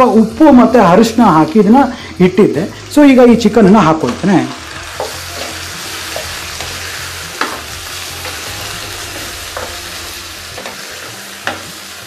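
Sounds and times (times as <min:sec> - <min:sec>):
chicken sizzling in oil: 0:00.0 - 0:12.0
utensil tapping pan: 0:04.9 - 0:11.8.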